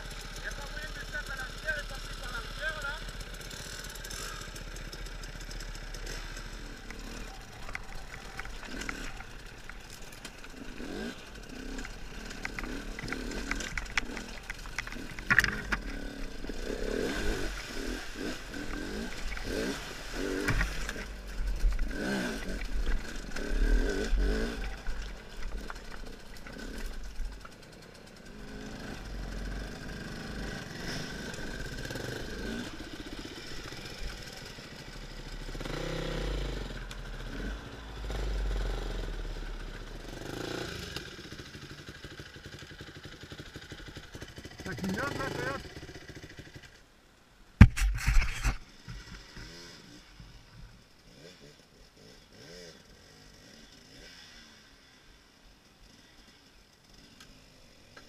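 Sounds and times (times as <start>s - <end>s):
motorcycle engine revving: 0.0s - 46.8s, 47.6s - 58.0s
bike clatter: 6.9s - 16.2s.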